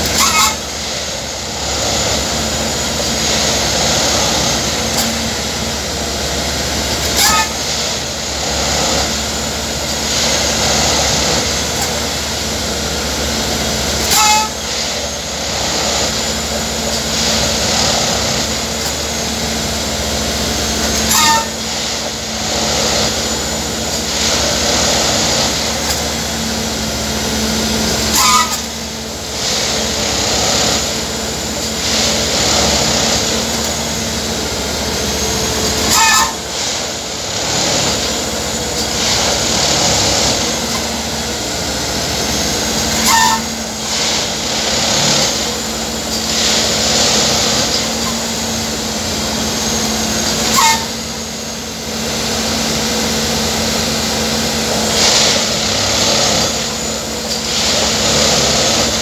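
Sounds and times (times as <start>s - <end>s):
diesel and hydraulic drone: 0.0s - 59.0s
sharp tamping bursts: 13.6s - 51.4s, 52.8s - 59.0s.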